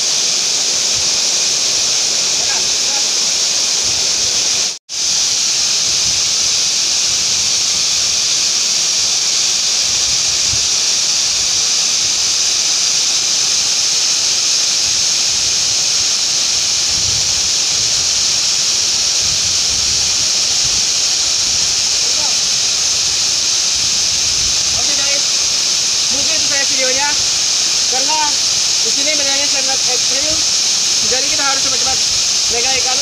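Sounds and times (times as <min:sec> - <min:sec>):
waterfall rushing: 0:00.0 - 0:33.0
wind buffeting microphone: 0:16.8 - 0:33.0.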